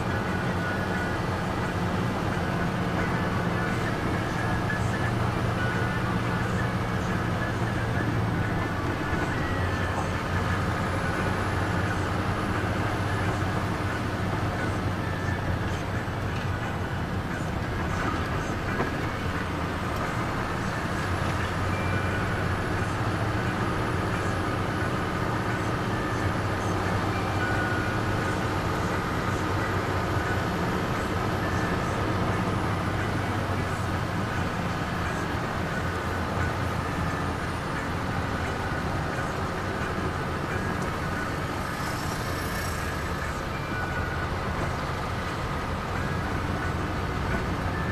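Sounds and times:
car engine and road noise: 0:00.0 - 0:47.9.

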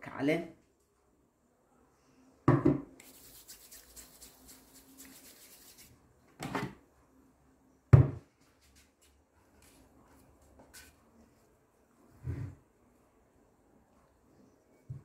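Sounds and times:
kitchenware knocks: 0:02.5 - 0:02.8
oiled hands rubbing together: 0:03.0 - 0:06.0.

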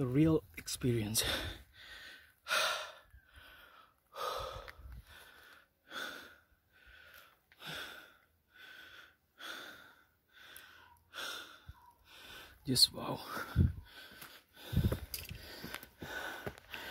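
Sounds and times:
man breathing heavily: 0:01.2 - 0:16.9.

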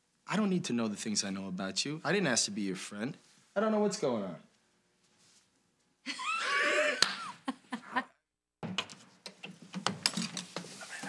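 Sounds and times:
people laughing: 0:06.1 - 0:08.2.

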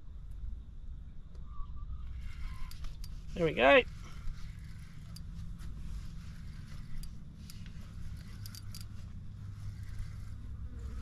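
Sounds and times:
steady low hum: 0:00.0 - 0:11.0
fishing reel clicks: 0:02.4 - 0:03.2, 0:06.3 - 0:08.9.

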